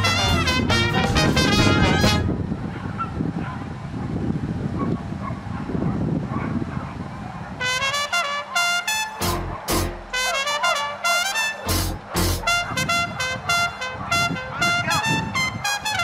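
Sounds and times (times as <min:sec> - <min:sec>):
music led by brass horns: 0:00.0 - 0:02.4, 0:07.6 - 0:16.0.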